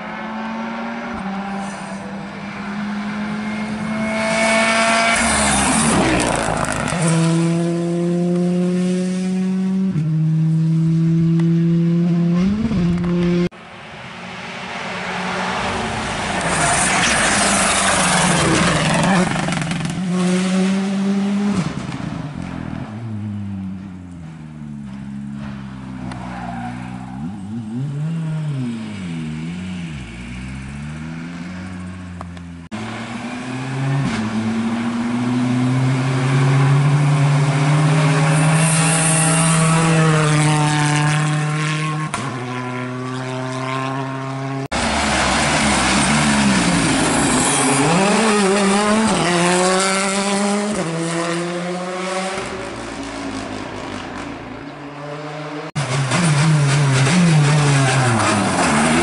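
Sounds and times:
rally car engine revving past: 32.8 - 53.3.

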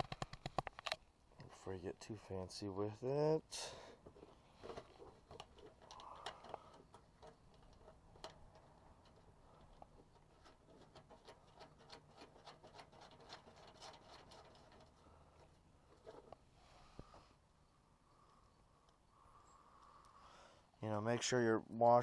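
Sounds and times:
small clicks of nuts on bolts: 5.2 - 9.9.

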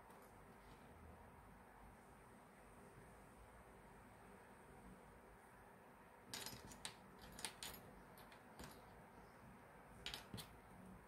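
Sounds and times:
small metal hardware clinking: 6.3 - 8.8, 10.0 - 10.6.

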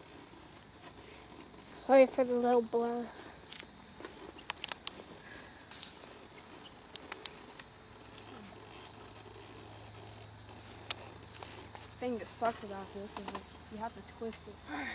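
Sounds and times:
insects chirring: 0.0 - 14.9
airsoft gun handling clicks: 3.4 - 5.0.

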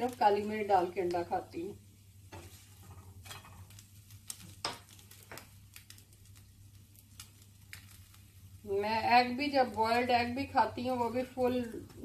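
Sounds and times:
egg frying in a pan: 0.0 - 12.0
spatula tapping and scraping pan: 2.3 - 6.1.

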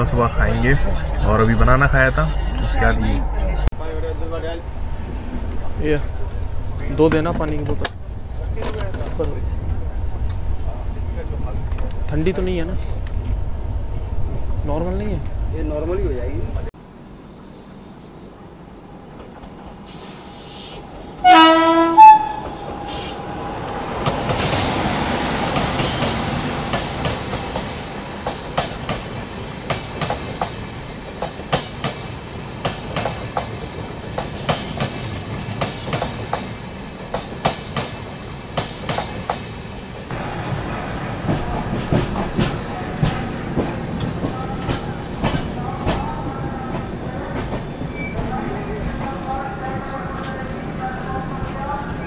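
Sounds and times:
train coaches rumbling: 0.0 - 52.0
locomotive horn blasts: 21.2 - 23.1.

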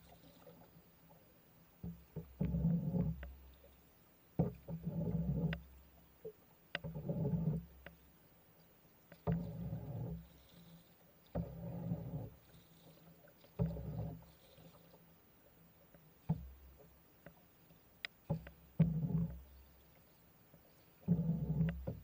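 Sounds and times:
paddle knocking: 1.8 - 8.1, 9.1 - 10.5, 11.2 - 12.5, 13.3 - 14.8, 16.0 - 22.0.

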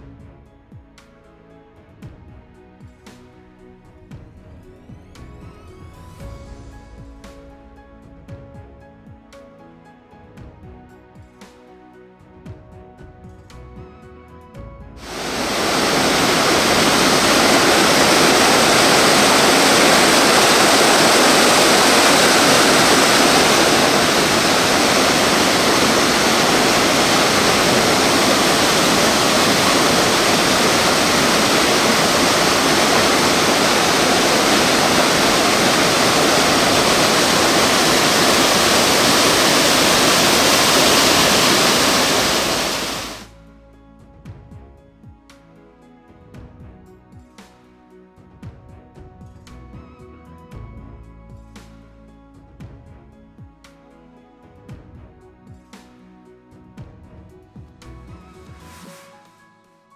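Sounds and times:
rushing water: 15.0 - 43.3.

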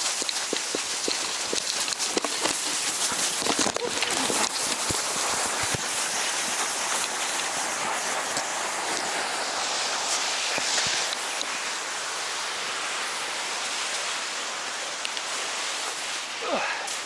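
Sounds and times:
light ticks: 0.0 - 5.0, 15.0 - 15.3
hissing scrape sliding on snow: 0.0 - 17.0.

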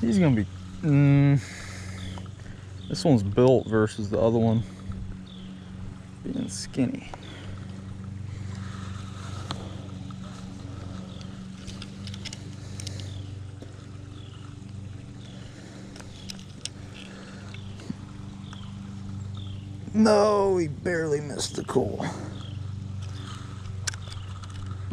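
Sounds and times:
low engine hum: 0.0 - 24.9
small clicks and rustles: 7.0 - 19.8, 22.3 - 24.9.

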